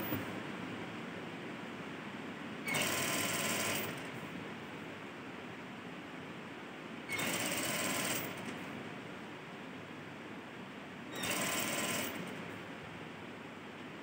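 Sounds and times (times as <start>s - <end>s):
steady hum: 0.0s - 2.6s
sewing machine stitching: 2.7s - 4.0s, 7.1s - 8.5s, 11.2s - 12.3s.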